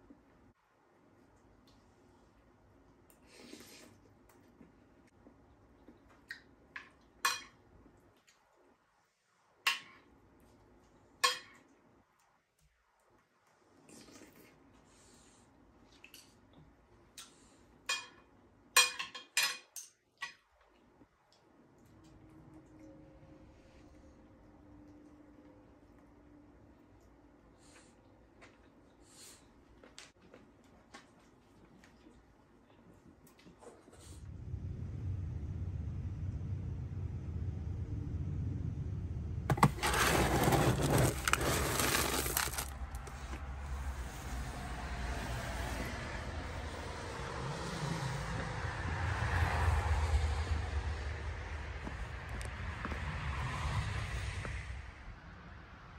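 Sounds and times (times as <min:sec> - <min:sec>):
utensils clinking on ceramic plate: 0:18.8 - 0:20.4
low steady rumble: 0:34.0 - 0:55.9
pellets rattling: 0:39.5 - 0:43.1
scoop digging into kibble: 0:39.5 - 0:43.4.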